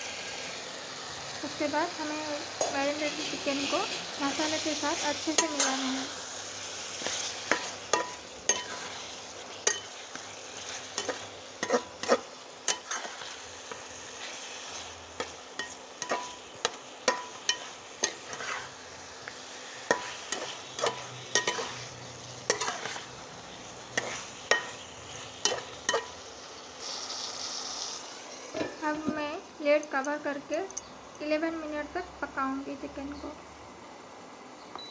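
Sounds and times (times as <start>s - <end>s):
food sizzling in frying pan: 0.0s - 33.1s
spatula scraping frying pan: 6.7s - 23.2s, 23.8s - 26.2s.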